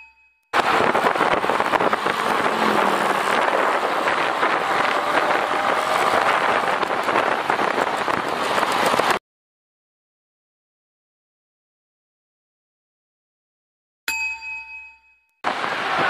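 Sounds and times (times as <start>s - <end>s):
wind and road noise: 0.6s - 9.2s, 15.5s - 16.0s.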